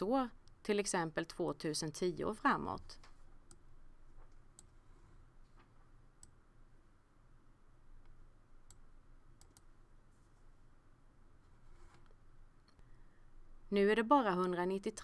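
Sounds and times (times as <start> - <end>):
quiet room hiss: 0.0 - 15.0
faint computer mouse clicks: 9.4 - 9.7.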